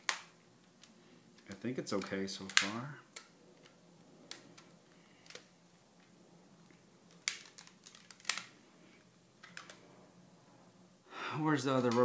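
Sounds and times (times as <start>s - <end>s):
hands handling phone clicks: 0.0s - 5.5s, 6.7s - 8.5s, 9.4s - 9.8s.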